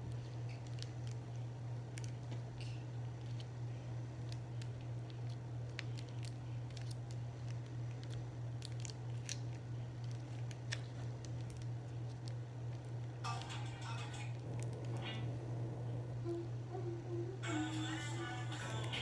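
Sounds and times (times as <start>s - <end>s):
steady low hum: 0.0s - 19.0s
plastic packet crinkling: 0.1s - 3.5s, 4.1s - 13.3s.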